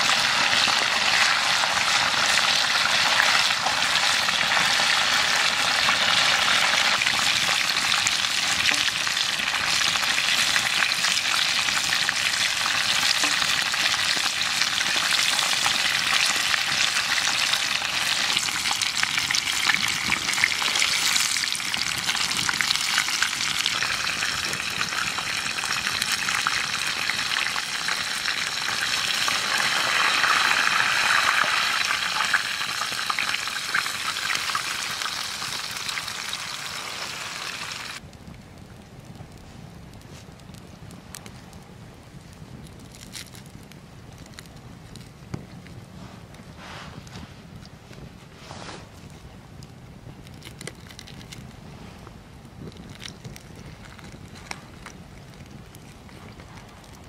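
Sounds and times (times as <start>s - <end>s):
chicken sizzling in a skillet: 0.0s - 38.0s.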